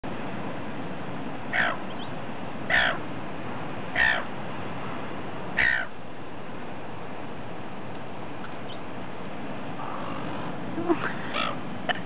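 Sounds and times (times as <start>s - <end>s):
steady background noise: 0.0s - 12.0s
gull calls: 1.5s - 2.1s, 2.7s - 3.0s, 4.0s - 4.3s, 5.6s - 5.9s, 11.0s - 11.6s.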